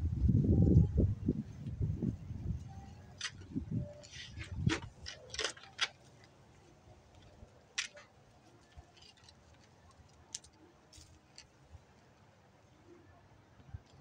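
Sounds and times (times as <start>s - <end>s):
sharp clicks and scrapes: 3.2s - 6.4s, 7.1s - 11.6s.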